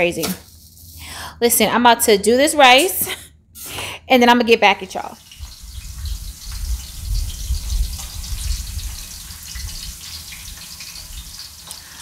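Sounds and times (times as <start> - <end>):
oil sizzling and crackling: 0.4 - 1.1, 5.2 - 12.0
tap water gushing into pot: 5.2 - 12.0.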